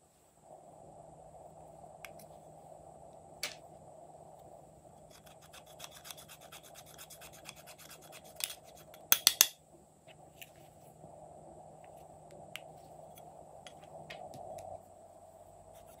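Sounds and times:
scraping powder in plastic compact: 5.0 - 9.1.

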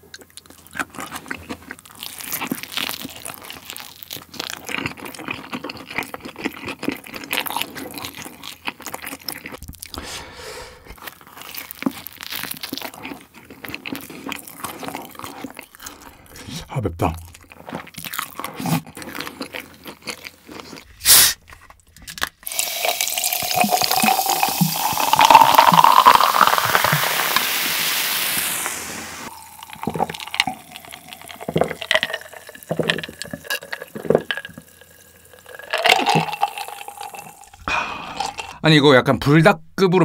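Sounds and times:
person gulping: 9.5 - 11.0, 15.6 - 17.4, 22.4 - 38.6
bottle opening hiss: 21.0 - 21.4, 22.5 - 29.6
cola fizzing: 22.4 - 38.6
cola pouring into glass: 22.4 - 38.6.

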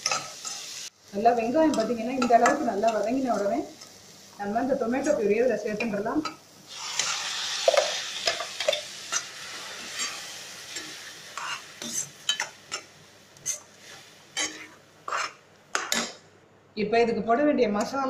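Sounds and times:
puree sizzling in hot oil: 0.0 - 16.2
metal spoon scraping a pan: 6.8 - 16.2.

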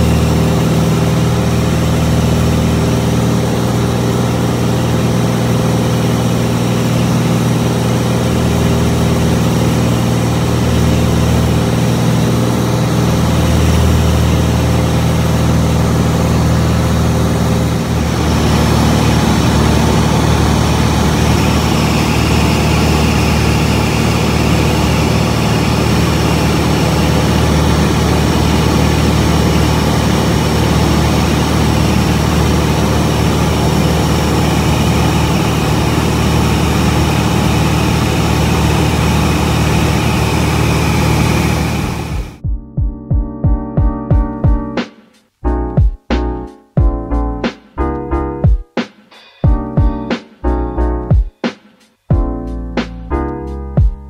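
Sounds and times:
aircraft engine and propeller drone: 0.0 - 42.4.

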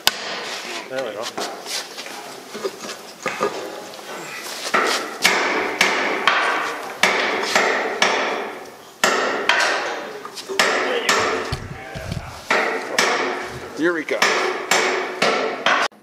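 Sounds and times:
hammer striking steel: 4.7 - 10.0, 10.6 - 11.8, 12.4 - 16.0.

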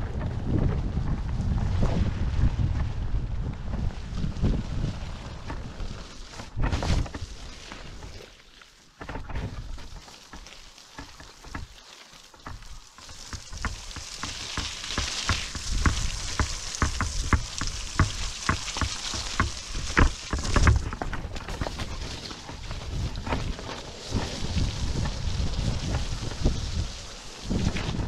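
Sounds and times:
tyres rolling over wet dirt: 0.0 - 28.0
ticks and thumps over bumps: 9.0 - 26.9.

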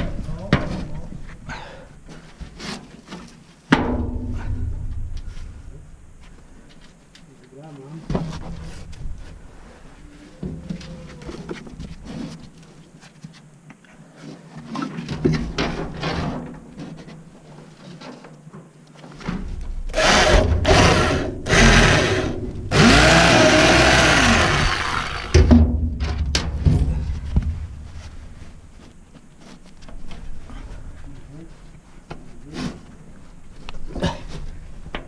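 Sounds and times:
power tool motor bursts: 19.9 - 25.4.

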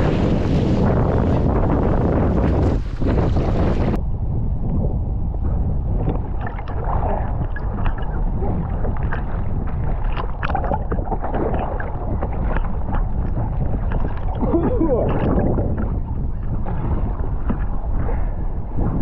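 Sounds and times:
water splashing against a wing: 0.0 - 4.0, 6.0 - 19.0
wind rumble on microphone: 0.0 - 19.0.

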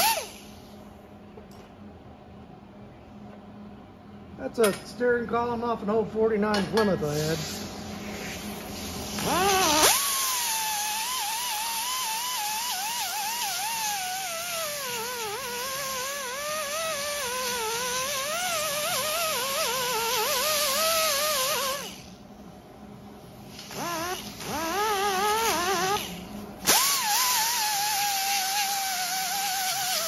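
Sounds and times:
pneumatic die grinder whining: 0.0 - 0.5, 9.0 - 22.2, 23.5 - 30.0.

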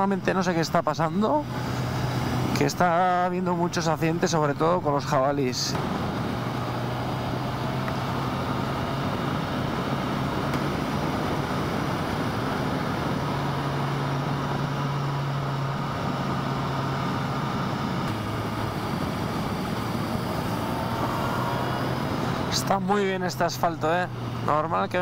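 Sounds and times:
wind and road noise: 0.0 - 25.0
motorcycle engine running: 5.8 - 25.0.

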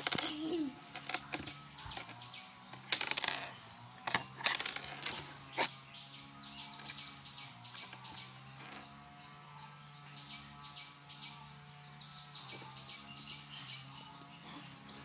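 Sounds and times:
plastic objects rattling on tabletop: 2.8 - 5.6.

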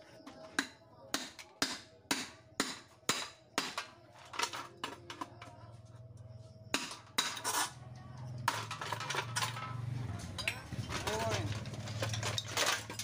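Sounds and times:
hammer striking metal: 0.6 - 3.8.

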